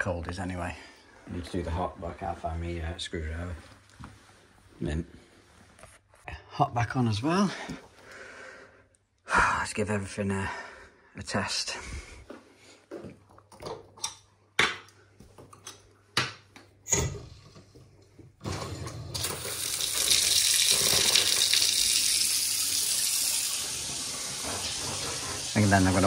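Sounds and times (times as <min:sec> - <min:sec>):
tap water running into sink: 0:18.5 - 0:26.0.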